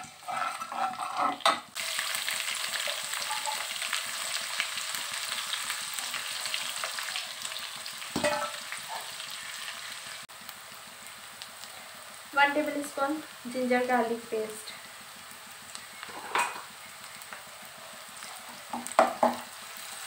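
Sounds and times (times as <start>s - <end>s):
metal spoon scraping wok: 0.0s - 1.7s, 16.1s - 16.7s
onions sizzling in oil: 0.0s - 20.0s.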